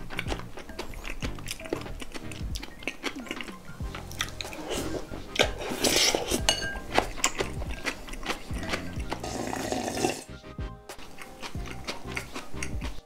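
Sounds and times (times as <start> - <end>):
drinking broth: 0.0 - 10.3
slurping noodles: 0.0 - 10.3
background music: 0.0 - 13.0.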